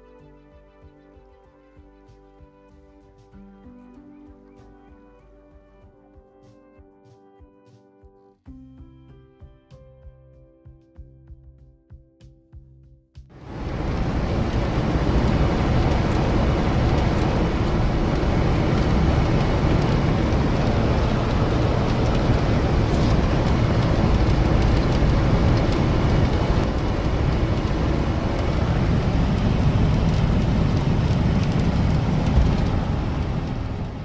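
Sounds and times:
car road and engine noise: 0:13.4 - 0:34.0.

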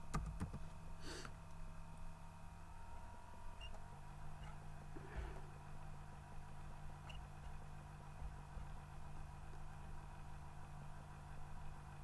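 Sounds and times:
electrical hum and hiss: 0:00.0 - 0:12.0.

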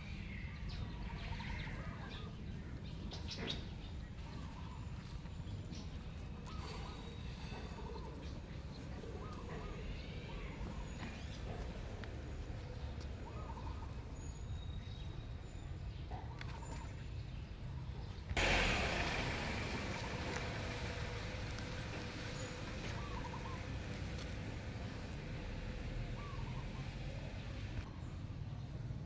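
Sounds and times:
loud steady hiss: 0:18.4 - 0:22.0.

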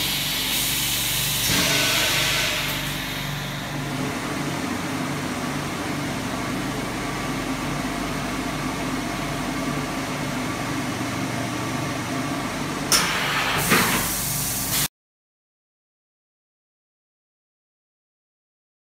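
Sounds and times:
machine hum and drone: 0:00.0 - 0:13.9
hiss bursts: 0:13.0 - 0:14.9.

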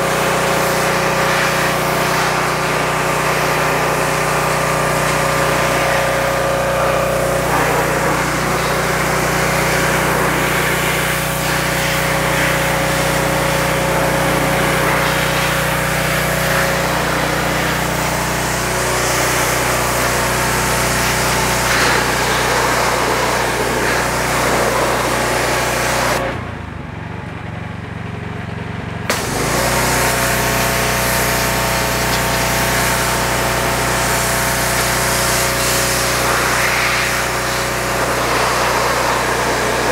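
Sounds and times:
pressure washer spray hissing: 0:00.0 - 0:26.2, 0:29.1 - 0:39.9
pressure washer click: 0:29.1 - 0:33.1.

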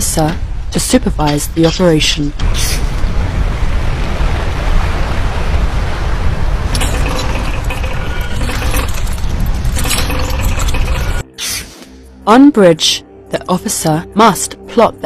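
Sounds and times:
deep rumble: 0:02.3 - 0:11.2
anchor chain rattling: 0:06.7 - 0:11.2
sharp metallic clattering: 0:06.7 - 0:11.2.

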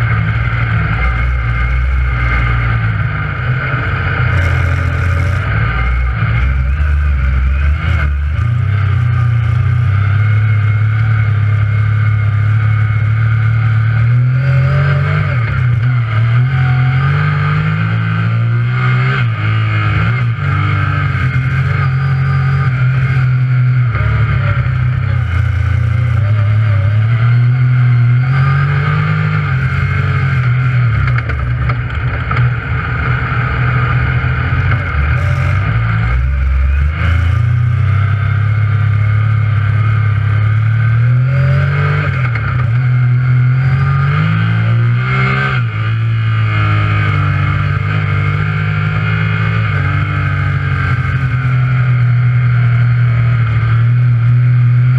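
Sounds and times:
engine running hard through mud: 0:00.0 - 0:54.9.

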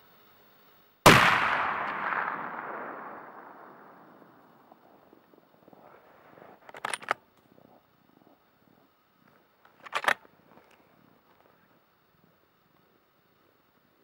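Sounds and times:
gunshot with rolling echo: 0:01.0 - 0:05.5.

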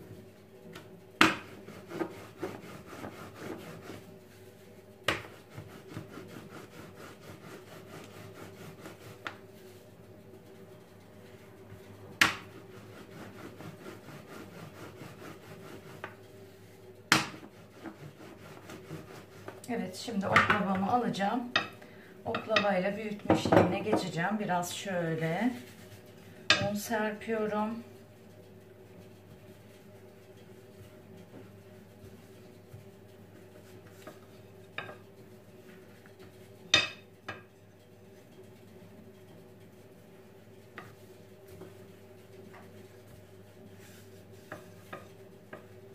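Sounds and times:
rolling pin rolling dough: 0:00.0 - 0:21.7, 0:22.3 - 0:45.9
steady low hum: 0:00.0 - 0:45.9
rolling pin knocking on countertop: 0:05.1 - 0:06.1, 0:17.1 - 0:18.0, 0:23.3 - 0:24.1.

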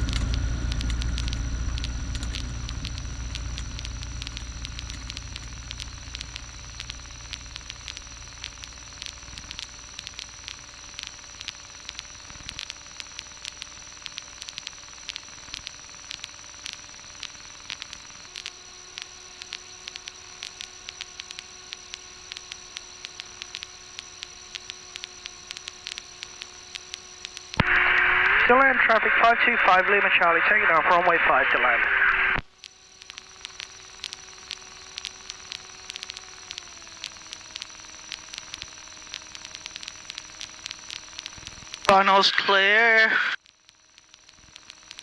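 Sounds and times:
low rumble: 0:00.0 - 0:08.0
crackling static: 0:00.0 - 0:45.0
faint electrical whine: 0:00.0 - 0:45.0
headset intercom hiss: 0:27.6 - 0:32.4, 0:41.8 - 0:43.4.

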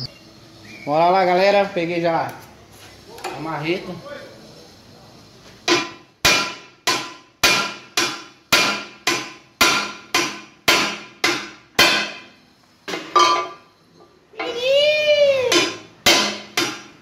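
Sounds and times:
sledgehammer striking steel wheel: 0:05.6 - 0:13.6, 0:15.5 - 0:17.0.

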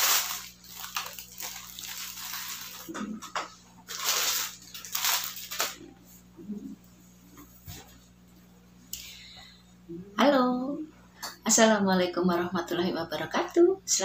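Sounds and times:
plastic bag rustling: 0:00.0 - 0:05.9.

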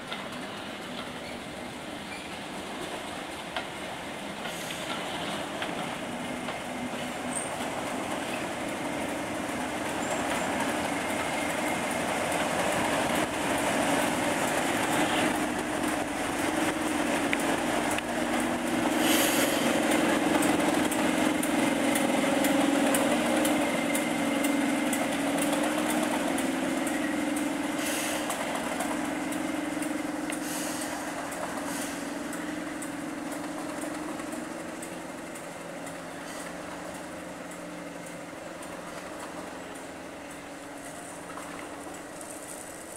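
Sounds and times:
diesel locomotive engine running: 0:00.0 - 0:42.9.

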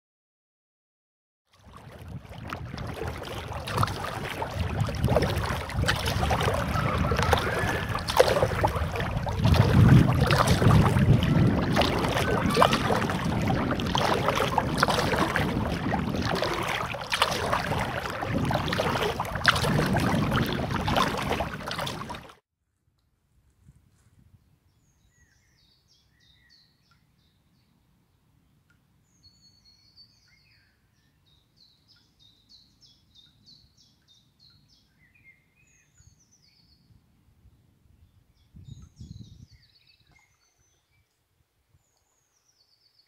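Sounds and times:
paddle splashing water: 0:01.5 - 0:22.4
wind on microphone: 0:01.7 - 0:22.3, 0:37.5 - 0:40.2.

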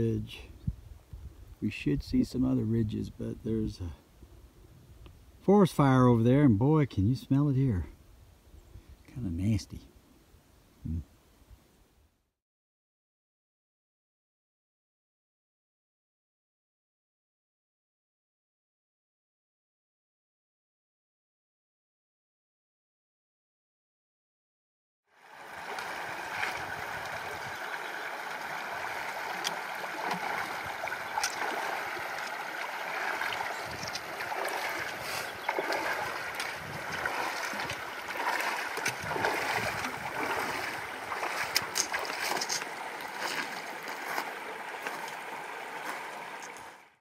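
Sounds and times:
river riffle running: 0:25.2 - 0:46.8
wading splashes: 0:25.2 - 0:46.8.

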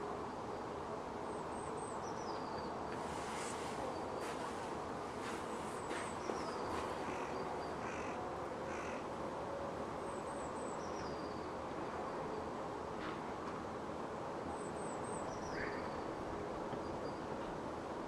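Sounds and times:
low city hum: 0:00.0 - 0:18.0
crow cawing: 0:06.7 - 0:09.1.

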